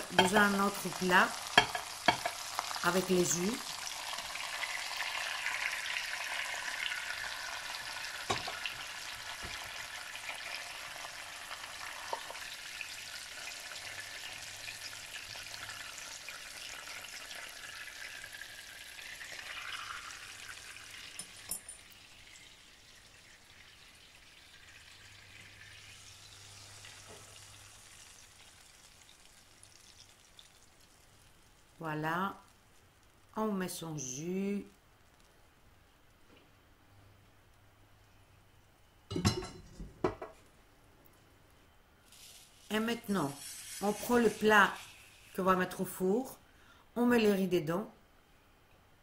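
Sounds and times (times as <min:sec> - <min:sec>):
chicken sizzling in oil: 0:00.0 - 0:33.3, 0:42.0 - 0:46.2.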